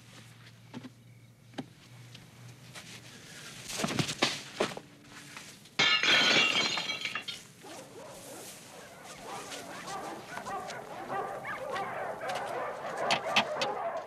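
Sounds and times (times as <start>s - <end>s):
glass window shattering: 5.8s - 7.5s.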